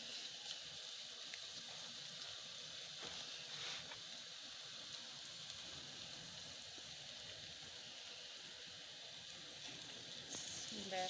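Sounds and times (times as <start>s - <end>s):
eggs deep-frying in oil: 0.0s - 11.0s
soft crackles: 0.4s - 7.4s.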